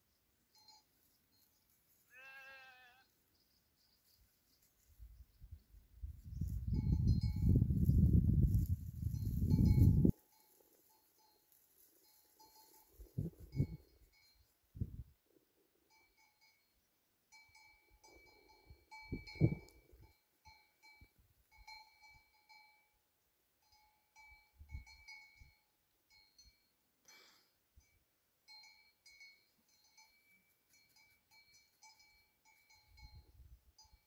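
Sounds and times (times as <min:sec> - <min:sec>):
livestock bells clinking: 0:00.4 - 0:02.8, 0:06.4 - 0:14.7, 0:15.7 - 0:34.0.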